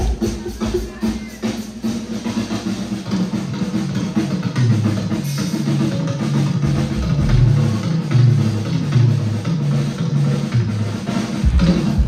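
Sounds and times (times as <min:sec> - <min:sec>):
drum kit beat: 0:00.0 - 0:12.0
live band dance music: 0:00.0 - 0:12.0
bass line: 0:05.7 - 0:09.4.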